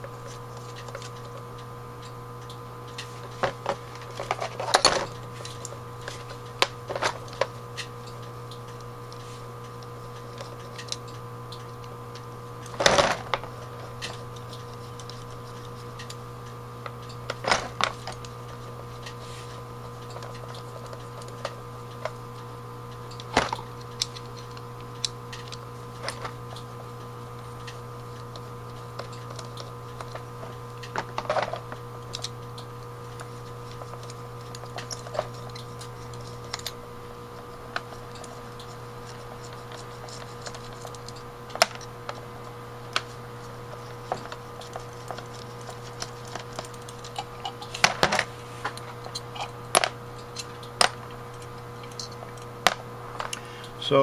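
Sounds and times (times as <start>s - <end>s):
steady low hum: 0.0s - 54.0s
screwdriver clicking on metal parts: 27.6s - 42.2s, 42.9s - 53.4s.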